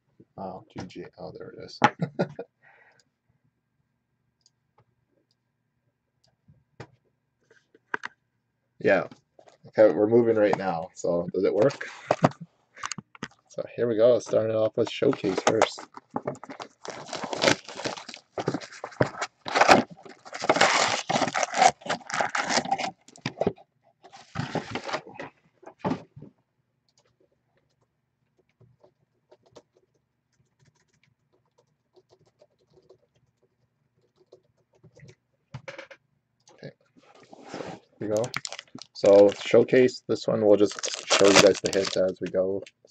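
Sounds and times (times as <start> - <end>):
packaging crinkling and tearing: 16.4 - 23.4, 38.0 - 39.6, 40.6 - 42.2.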